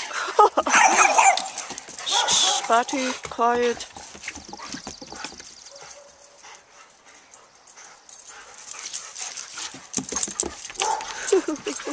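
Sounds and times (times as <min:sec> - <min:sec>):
scuffling and rustling: 0:01.0 - 0:06.1.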